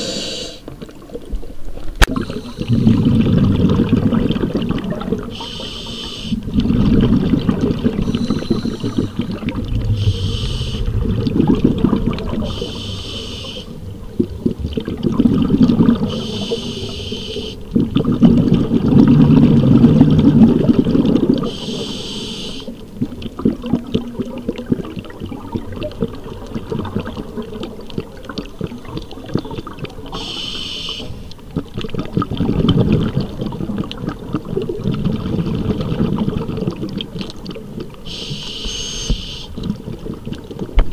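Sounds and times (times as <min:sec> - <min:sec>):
regulator hissing inhalations: 0:00.0 - 0:00.6, 0:05.3 - 0:06.4, 0:08.0 - 0:09.2, 0:10.0 - 0:10.9, 0:12.5 - 0:13.7, 0:16.1 - 0:17.6, 0:21.5 - 0:22.7, 0:30.2 - 0:31.2, 0:38.1 - 0:39.6
gurgling exhaled bubbles: 0:02.0 - 0:40.9.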